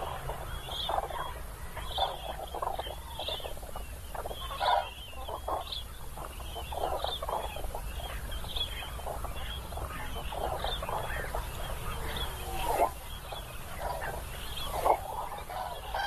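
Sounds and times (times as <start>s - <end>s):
cranes trumpeting calls: 4.3s - 16.0s.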